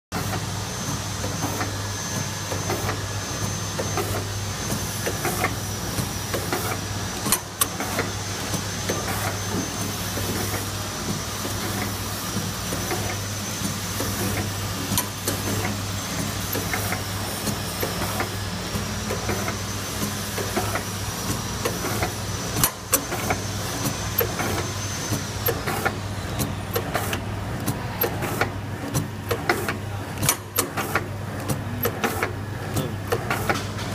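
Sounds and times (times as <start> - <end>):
packing machine humming: 0.2 - 33.9
machine clicks and knocks: 25.4 - 33.9.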